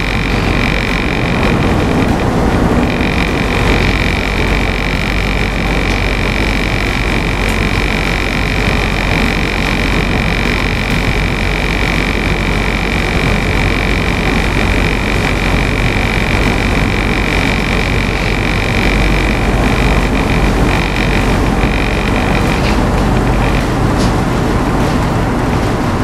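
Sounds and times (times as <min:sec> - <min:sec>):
constant high whine: 0:00.0 - 0:26.0
diesel engines rumbling: 0:00.0 - 0:26.0.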